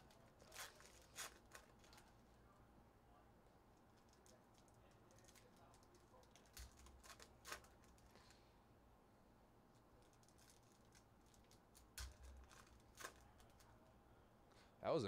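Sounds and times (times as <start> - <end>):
foil pack crinkling and clicking: 0.0 - 2.2, 4.0 - 8.4, 10.0 - 13.7.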